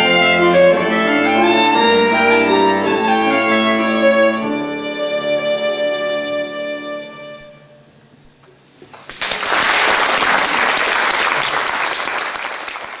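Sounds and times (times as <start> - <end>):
violins and cello: 0.0 - 7.8
audience applause: 8.9 - 13.0.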